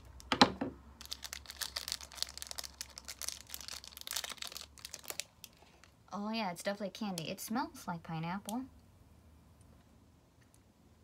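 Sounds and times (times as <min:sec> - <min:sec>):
candy wrapper crinkling: 0:01.0 - 0:06.0.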